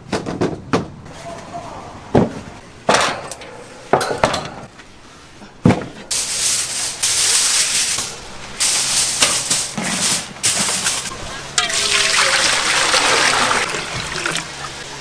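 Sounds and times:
kitchen knocks and clatter: 2.9 - 4.7
loud steady hiss: 6.1 - 15.0.

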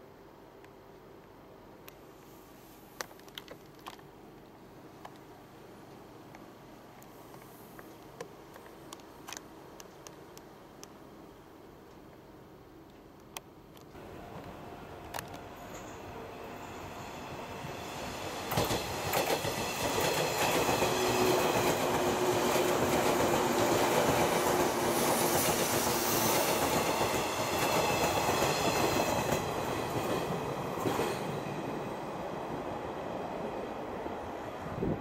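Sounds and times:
train rumble passing: 14.0 - 35.0
train wheels clacking over rail joints: 18.4 - 31.4.

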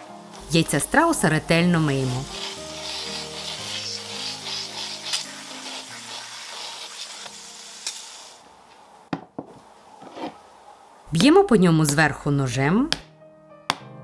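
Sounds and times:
soft background music: 0.0 - 8.4, 11.0 - 14.0
tap water running and splashing: 2.0 - 8.4.

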